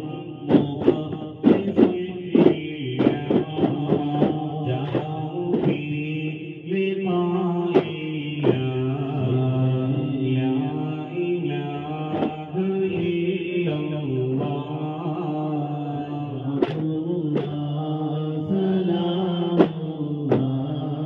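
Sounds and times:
sharp percussive strikes: 0.0s - 6.0s, 7.8s - 8.8s, 12.0s - 13.2s, 16.5s - 17.7s, 19.0s - 20.8s
group chanting on long notes: 0.0s - 21.0s.

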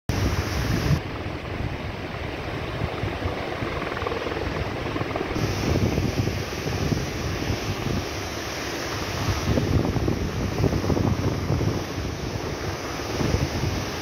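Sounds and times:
wind buffeting microphone: 0.1s - 14.0s
waterfall rushing: 4.5s - 14.0s.

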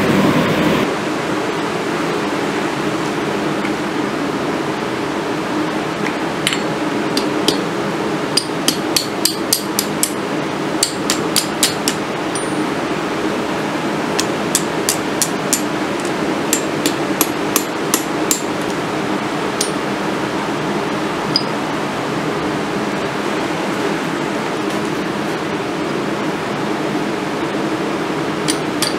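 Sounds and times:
steady rushing noise: 0.0s - 7.1s
hammer striking steel on anvil: 6.5s - 7.7s, 8.3s - 10.2s, 10.8s - 12.6s, 14.2s - 15.7s, 16.5s - 18.6s, 19.6s - 19.8s, 28.4s - 28.9s.

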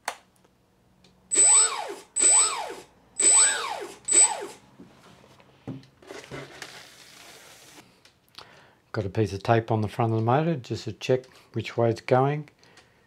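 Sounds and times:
electric motor whine: 1.3s - 4.6s.

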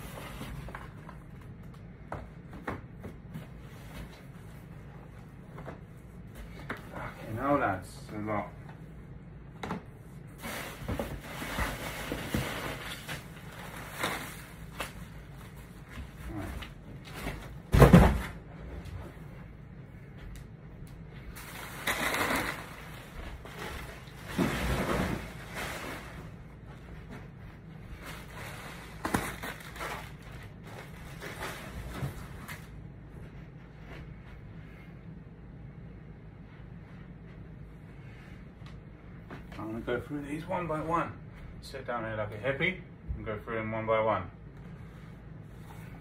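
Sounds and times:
low steady hum: 0.0s - 46.0s
packing material rustling: 21.3s - 26.4s, 28.0s - 32.7s.

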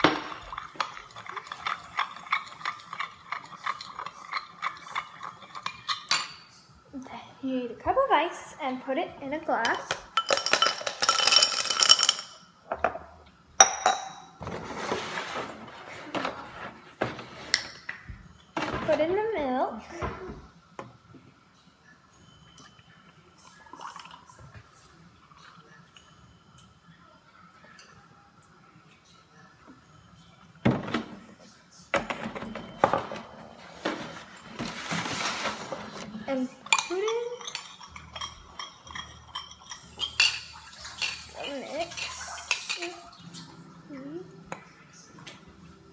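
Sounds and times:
ice cubes clinking into glass: 10.2s - 12.4s.

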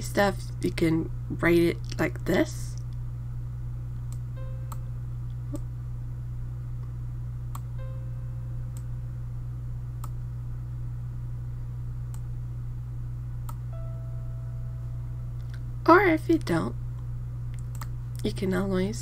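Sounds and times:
low electrical hum: 0.0s - 19.0s
short piano-like note: 13.7s - 15.4s
computer mouse clicking: 17.6s - 17.9s.

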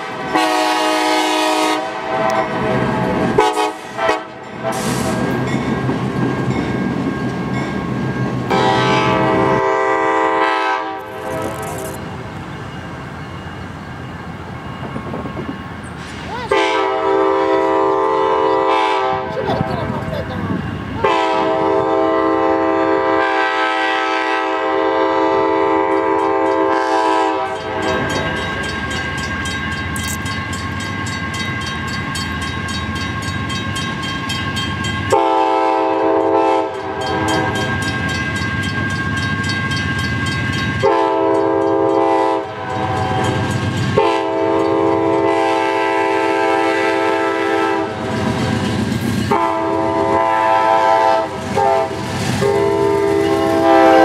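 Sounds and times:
locomotive air horn blasts: 0.0s - 5.2s, 8.5s - 11.9s, 16.4s - 19.4s, 21.0s - 28.0s, 35.1s - 37.7s, 40.8s - 48.1s, 49.3s - 54.0s
train rumbling on rails: 0.0s - 54.0s.

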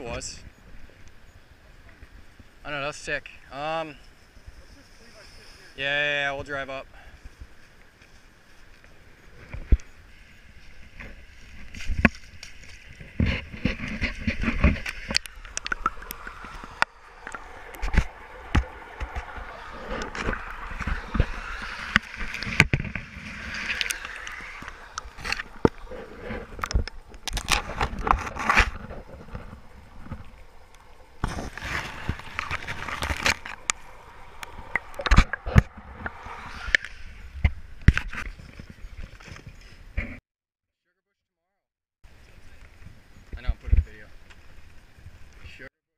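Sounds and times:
fabric rubbing over microphone: 16.1s - 26.6s, 31.2s - 33.6s.

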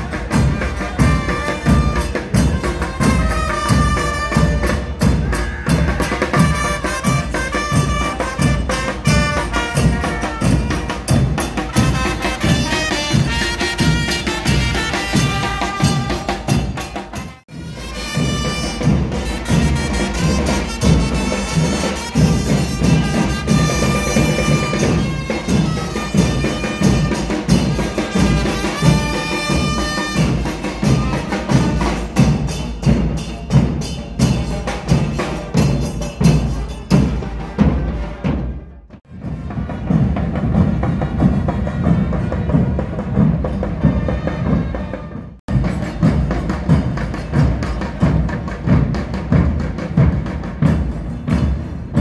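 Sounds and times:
trumpets playing melody: 0.0s - 32.6s, 34.4s - 45.4s
drums beating: 0.0s - 52.0s.

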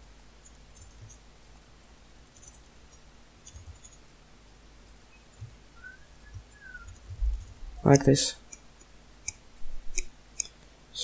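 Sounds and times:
low steady hum: 0.0s - 11.0s
keyboard typing clicks: 2.3s - 4.1s.

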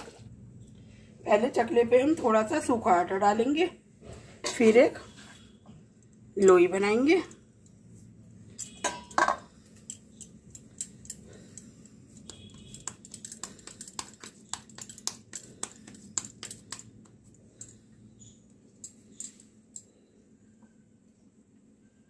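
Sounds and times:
hands shaping dough: 9.4s - 20.8s.

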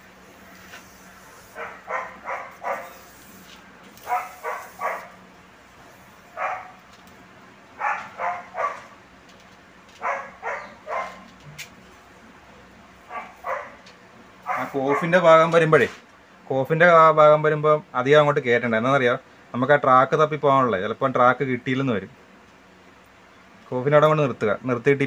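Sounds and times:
dog barking: 1.6s - 3.0s, 4.0s - 5.2s, 6.4s - 6.8s, 7.8s - 9.0s, 10.0s - 11.3s, 13.1s - 13.8s, 14.5s - 15.1s.

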